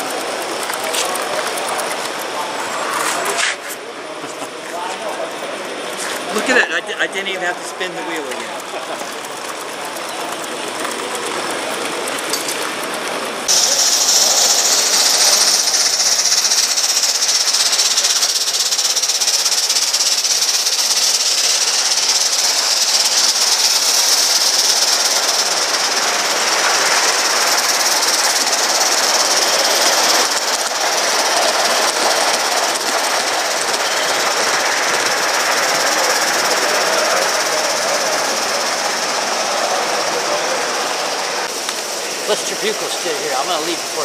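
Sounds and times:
model steam engine running: 0.0 - 44.0
loud steady hiss of steam: 13.4 - 44.0.

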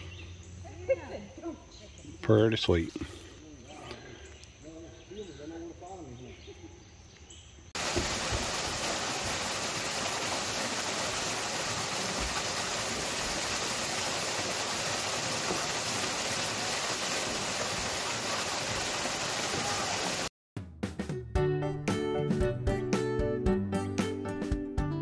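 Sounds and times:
waterfall rushing: 7.8 - 20.3.

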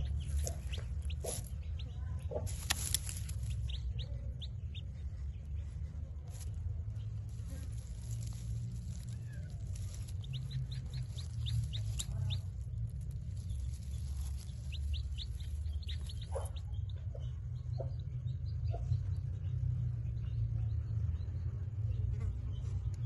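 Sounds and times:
chick peeping: 0.0 - 23.0
low rumble: 0.0 - 23.0.

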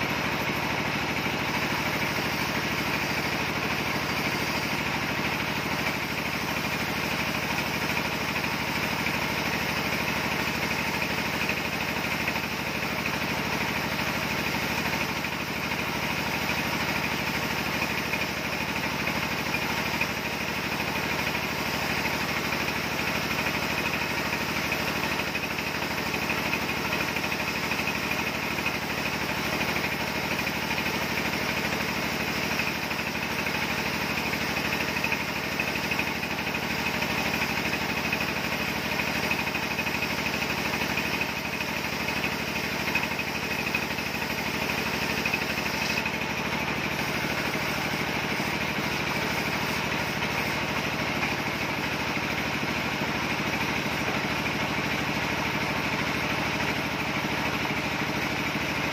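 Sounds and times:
band saw cutting log: 42.9 - 51.5.

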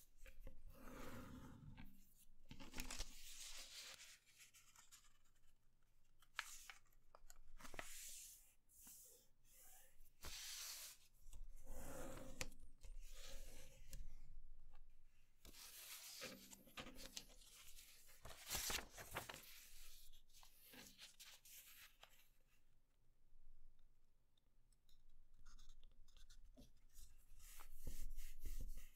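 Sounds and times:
paper rustling and crackling: 6.3 - 8.0, 15.5 - 20.0.

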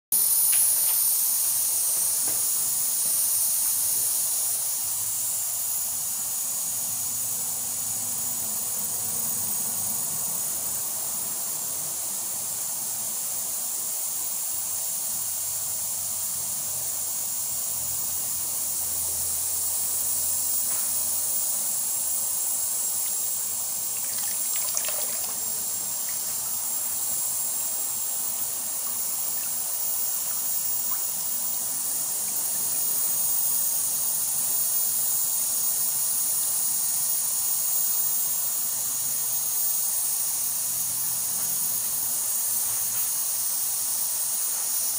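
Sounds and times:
running water rushing: 23.0 - 33.0.

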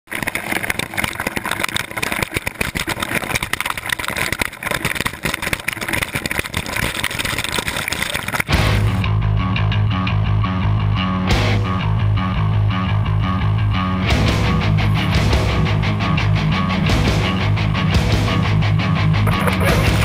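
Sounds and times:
creek water rushing and splashing: 0.1 - 9.0
rock music with guitar and bass: 8.5 - 20.0.

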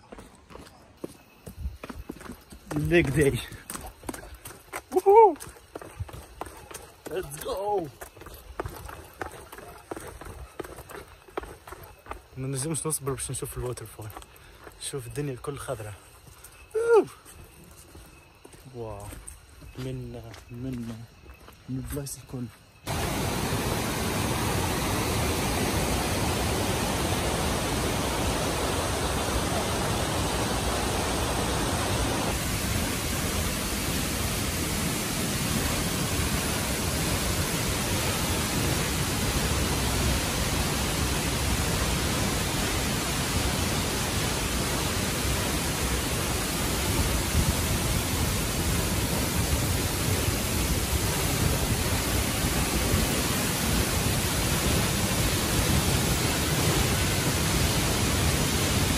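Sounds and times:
waterfall rushing: 22.9 - 58.9.

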